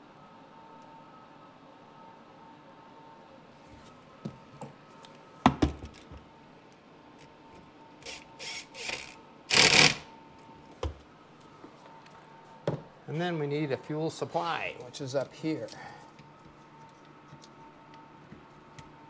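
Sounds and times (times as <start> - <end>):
cordless driver whirring: 8.0 - 10.1.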